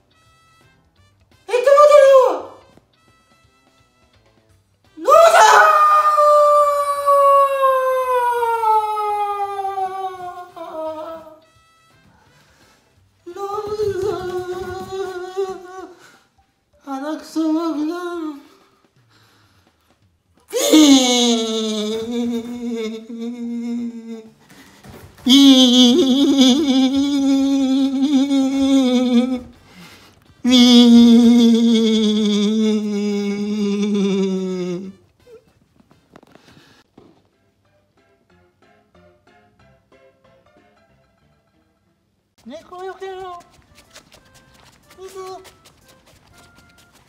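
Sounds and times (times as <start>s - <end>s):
long howl: 5.1s - 11.2s
man humming nasal notes: 20.5s - 24.4s, 25.3s - 29.6s, 30.4s - 35.4s.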